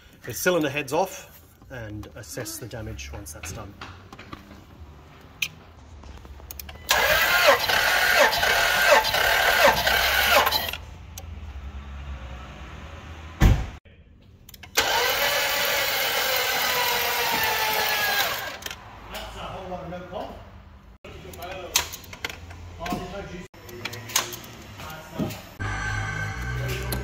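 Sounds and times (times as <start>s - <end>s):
engine cranking on starter: 6.6s - 10.8s, 14.6s - 18.8s
low thump: 13.4s - 13.8s.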